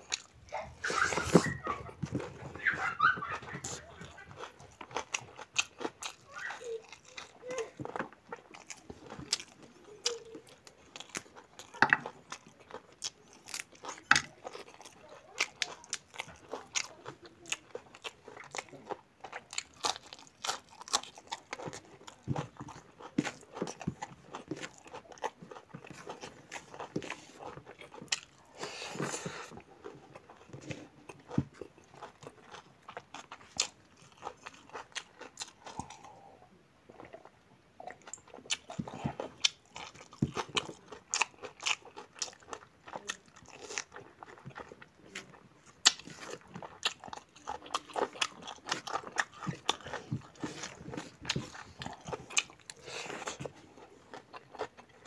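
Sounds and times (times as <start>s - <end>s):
close chewing and biting: 0.0s - 55.0s.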